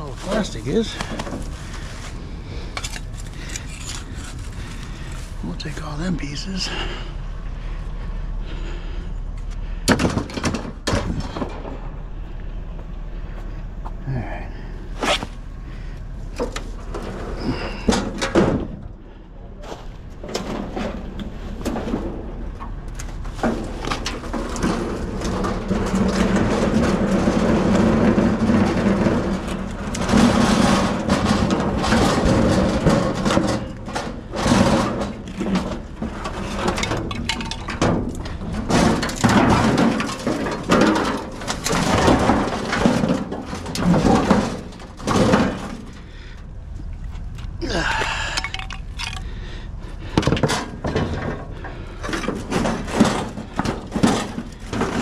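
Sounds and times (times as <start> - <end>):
scrap metal clanking: 0.0 - 13.5, 14.1 - 55.0
steady low hum: 0.0 - 55.0.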